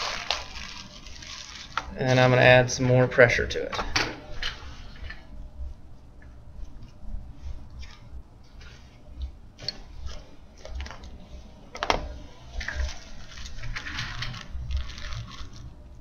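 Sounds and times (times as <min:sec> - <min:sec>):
plastic bag crinkling: 0:00.0 - 0:02.5, 0:12.8 - 0:16.0.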